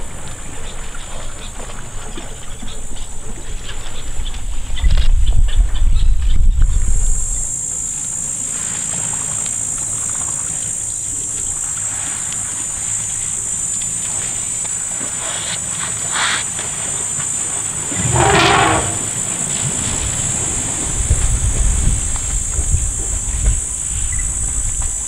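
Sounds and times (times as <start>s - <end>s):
insect chorus chirring: 7.1s - 25.0s
brief loud noise: 17.9s - 19.2s.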